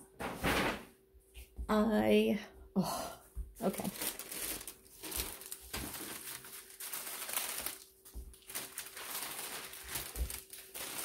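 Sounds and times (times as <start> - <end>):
paper sheet rustling: 3.7 - 11.0.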